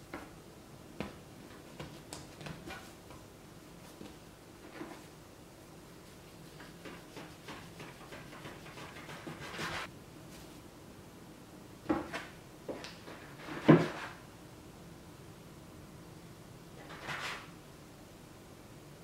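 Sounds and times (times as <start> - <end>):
dough scraper scraping: 6.6 - 9.9
dough scraper tapping board: 6.8 - 9.6.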